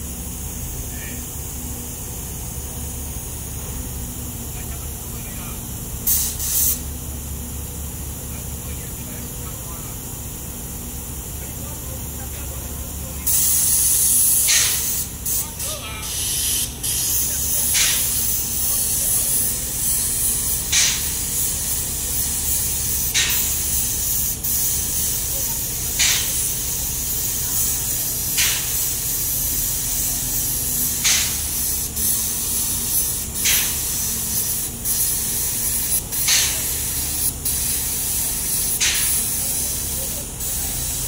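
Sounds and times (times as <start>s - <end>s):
steady low hum: 0.0s - 41.0s
paint spray gun hissing: 6.0s - 7.0s, 13.2s - 41.0s.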